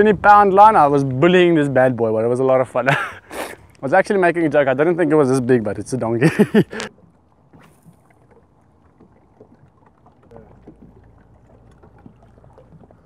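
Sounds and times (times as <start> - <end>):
low steady rumble: 0.0 - 13.0
water lapping at hull: 0.0 - 13.0
small ticks and knocks: 6.8 - 13.0.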